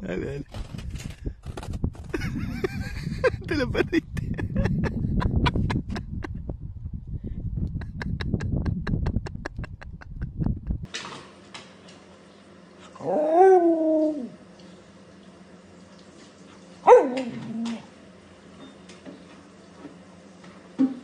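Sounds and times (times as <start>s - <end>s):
dog howling: 13.0s - 14.4s.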